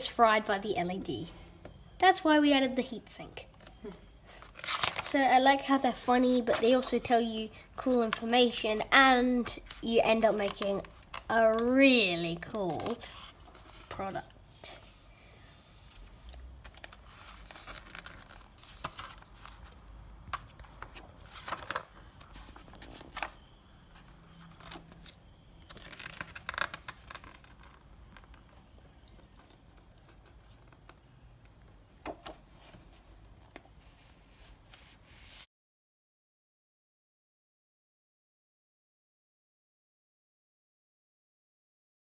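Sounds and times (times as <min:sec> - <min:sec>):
paper pages rustling: 0:03.6 - 0:05.3, 0:09.3 - 0:11.7, 0:12.4 - 0:15.0, 0:15.7 - 0:31.0.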